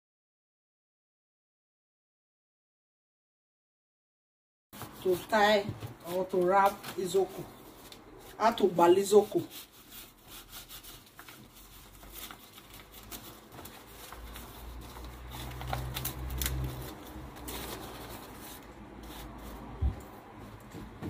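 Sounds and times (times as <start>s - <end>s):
leaves rustling and crackling: 10.5s - 19.6s.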